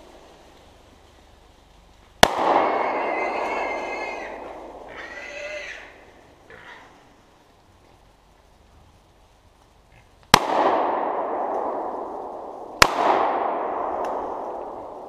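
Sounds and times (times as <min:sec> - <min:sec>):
pistol shot echoing: 0:02.2 - 0:03.4, 0:10.3 - 0:15.0
hog squealing: 0:02.8 - 0:04.3, 0:04.9 - 0:06.9.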